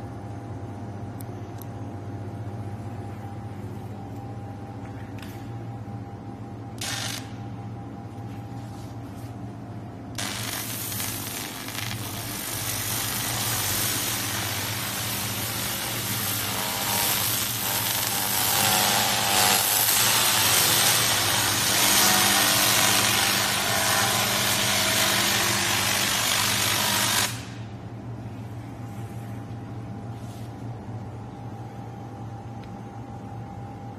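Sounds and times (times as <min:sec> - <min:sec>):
steady low hum: 0:00.0 - 0:33.9
laser cleaning hiss: 0:10.2 - 0:18.7.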